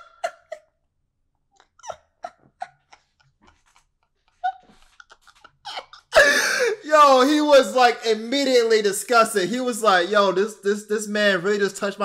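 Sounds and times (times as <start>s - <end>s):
man wheezing laughter: 1.8s - 6.9s.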